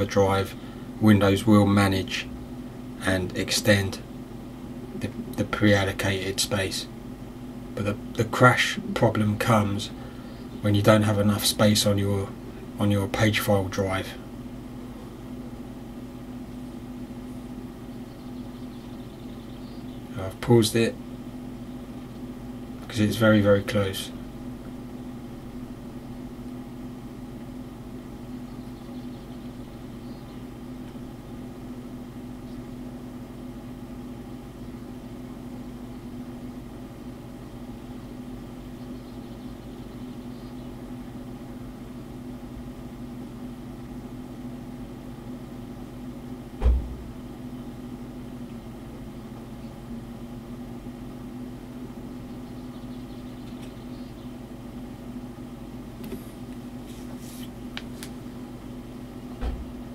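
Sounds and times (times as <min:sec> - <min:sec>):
low machine hum: 0:00.0 - 0:59.9
low thump: 0:46.6 - 0:47.2, 0:59.4 - 0:59.8.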